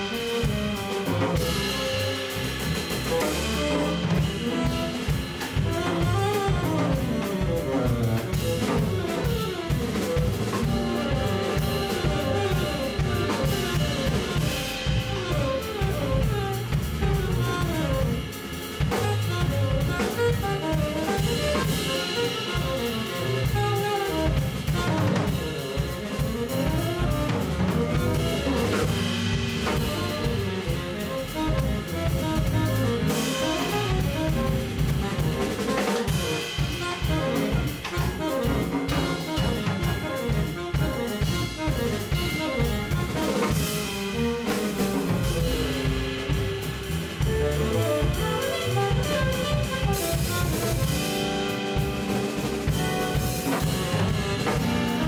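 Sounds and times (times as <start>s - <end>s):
busy drumming: 0.0s - 55.0s
saxophone: 0.0s - 55.0s
upright bass: 0.0s - 55.0s.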